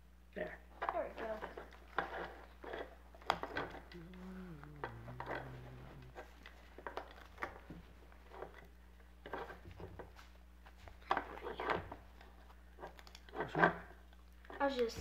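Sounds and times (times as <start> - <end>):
small clicks and scrapes: 0.8 - 4.0, 4.8 - 10.2.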